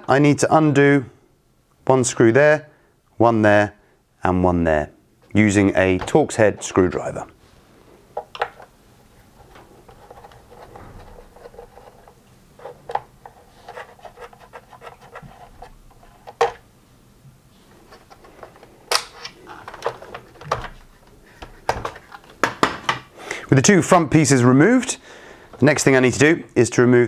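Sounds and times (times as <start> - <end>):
plastic parts clicking and knocking: 8.2 - 8.7, 9.4 - 16.6, 17.9 - 23.1.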